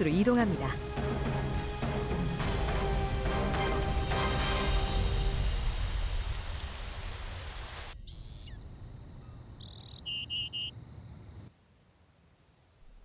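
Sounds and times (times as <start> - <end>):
high bird and insect chirps: 6.0 - 11.5, 12.2 - 13.0.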